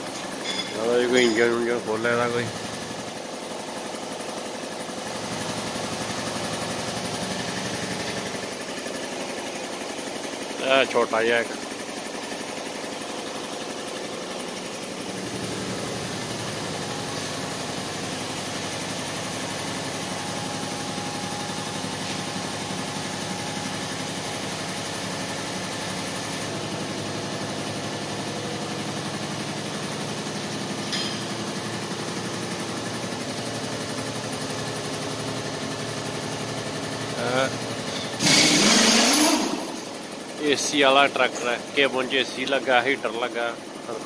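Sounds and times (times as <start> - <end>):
mechanical engine-like drone: 37.2 - 40.7.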